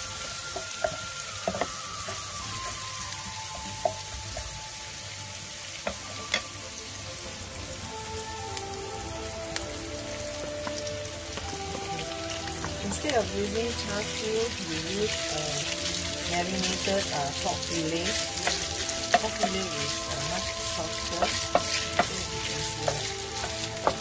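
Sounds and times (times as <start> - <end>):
garlic sizzling in hot oil: 0.0 - 24.0
wooden spatula tapping pan: 0.5 - 4.5, 5.8 - 6.5, 10.4 - 24.0.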